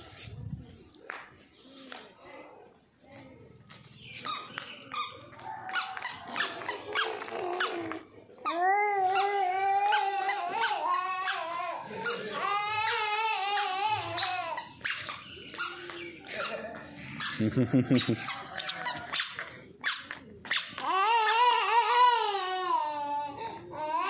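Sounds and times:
puppy yipping and squeaking: 0:04.1 - 0:07.7, 0:14.2 - 0:16.6.

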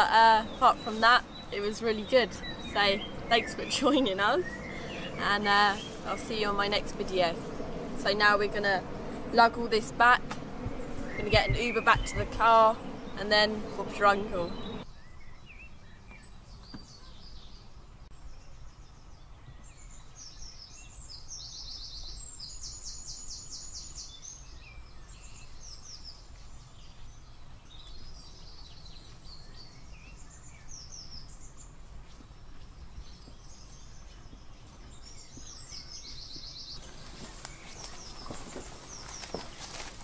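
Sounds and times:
steady low rumble: 0:00.0 - 0:14.9
songbirds singing: 0:00.0 - 0:40.0.

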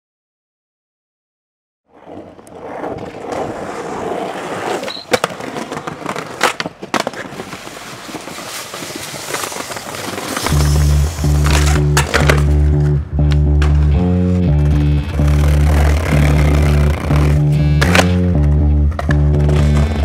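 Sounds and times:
skateboard wheels rolling on asphalt: 0:01.9 - 0:12.9, 0:15.1 - 0:20.0
skateboard clacking on ground: 0:02.0 - 0:10.7.

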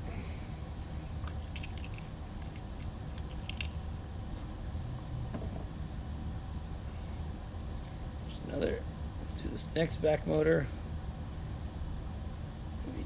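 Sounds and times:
low room hum: 0:00.0 - 0:13.0
small parts clicking and rattling: 0:01.2 - 0:03.8.

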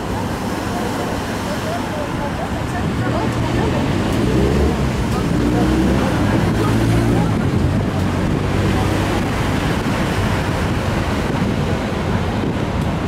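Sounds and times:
breaking surf: 0:00.0 - 0:13.0
wind buffeting microphone: 0:00.0 - 0:13.0.

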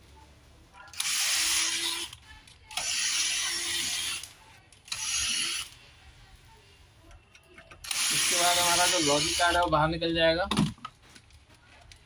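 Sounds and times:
electric screwdriver whirring: 0:01.0 - 0:04.3, 0:04.9 - 0:05.8, 0:07.8 - 0:09.7.

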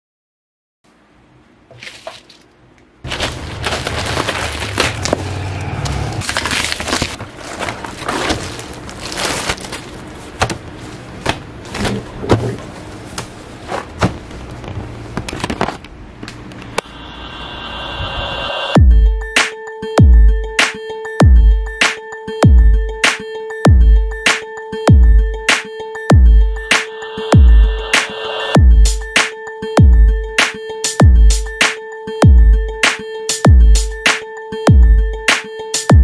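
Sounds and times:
steady low hum: 0:02.4 - 0:19.4
plastic crinkling and rustling: 0:03.1 - 0:05.3, 0:06.2 - 0:15.9
music: 0:16.8 - 0:36.0.

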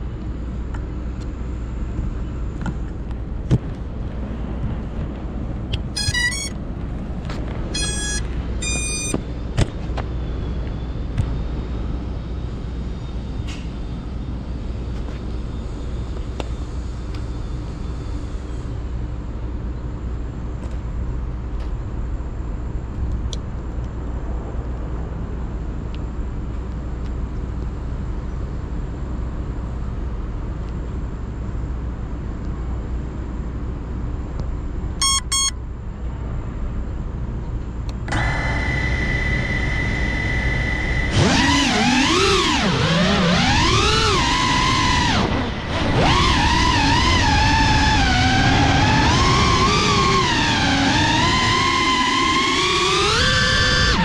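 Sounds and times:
low outdoor rumble: 0:00.0 - 0:52.6
electronic beep tones: 0:05.9 - 0:06.6, 0:07.7 - 0:09.2, 0:35.0 - 0:35.6.

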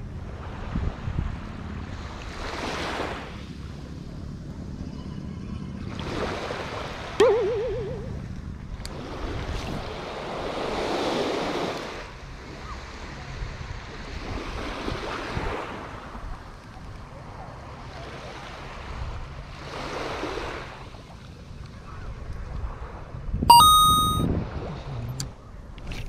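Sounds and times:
small waves breaking on beach: 0:00.3 - 0:03.5, 0:08.9 - 0:16.6, 0:17.2 - 0:21.2.

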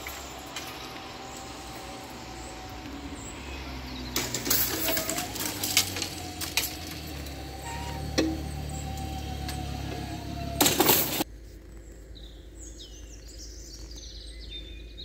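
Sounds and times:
barrier grilles rattling and clinking: 0:00.0 - 0:11.2.

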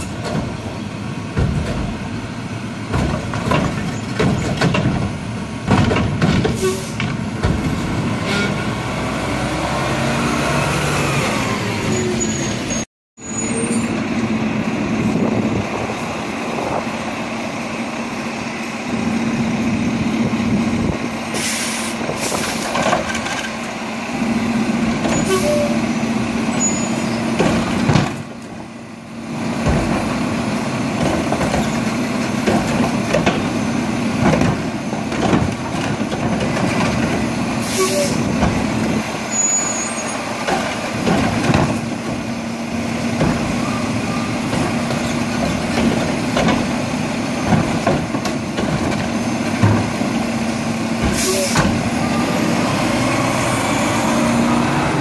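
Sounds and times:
short air hisses: 0:21.4 - 0:22.6.

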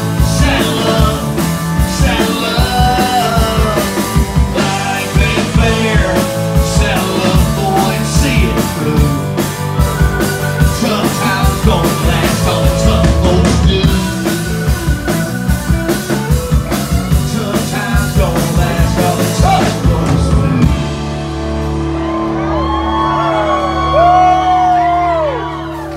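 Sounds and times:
drums: 0:00.0 - 0:25.9
live country-rock band: 0:00.0 - 0:25.9
audience whooping and yelling: 0:21.4 - 0:25.9.

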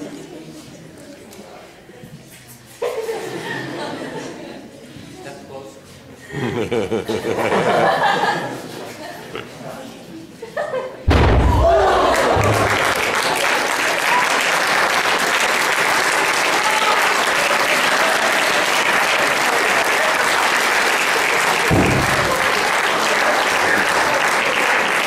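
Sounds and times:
dull thud: 0:11.1 - 0:11.9, 0:21.7 - 0:22.3
people cheering: 0:11.1 - 0:25.0
audience applauding: 0:11.6 - 0:25.0.

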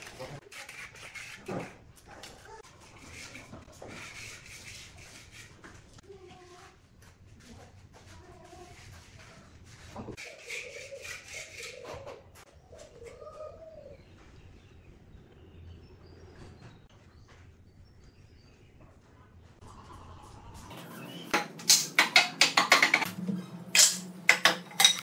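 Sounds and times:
faint bird cooing: 0:11.8 - 0:14.0.

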